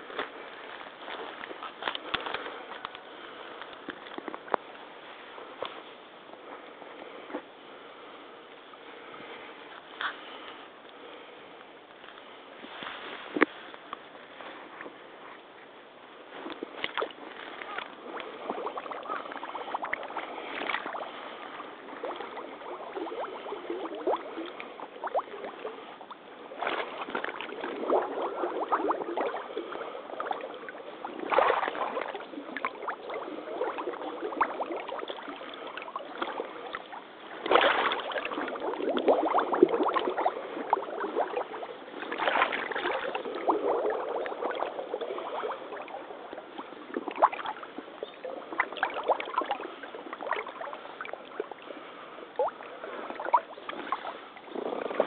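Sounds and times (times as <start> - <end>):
waders splashing through water: 16.3 - 55.0.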